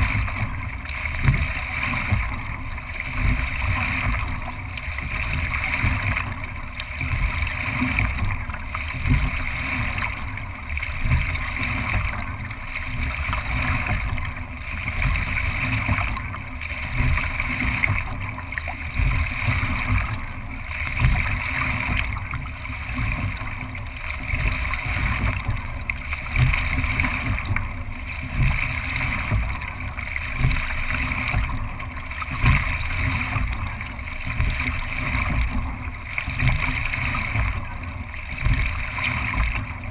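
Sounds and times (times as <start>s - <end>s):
water rushing along hull: 0.0s - 39.9s.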